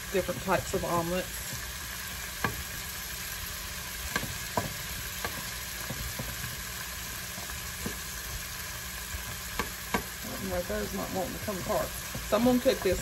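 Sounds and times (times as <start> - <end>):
vegetables sizzling in a pan: 0.0 - 13.0.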